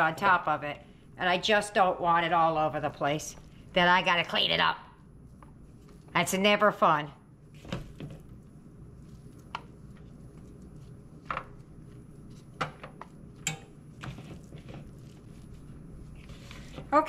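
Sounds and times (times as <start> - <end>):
hands handling dough: 7.5 - 17.0.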